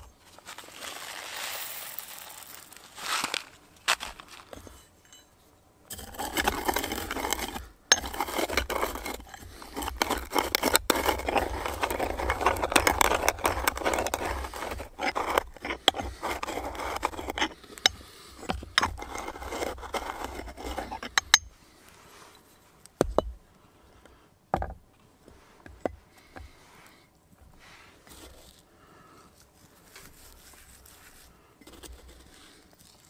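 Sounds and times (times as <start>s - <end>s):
pestle grinding peppercorns: 5.9s - 21.5s.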